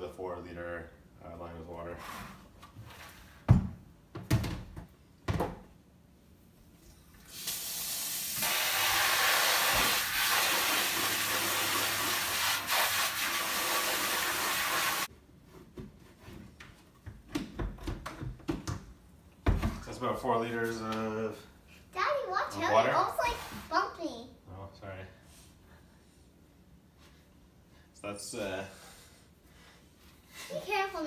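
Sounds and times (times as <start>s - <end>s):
faucet running water: 7.2s - 15.1s.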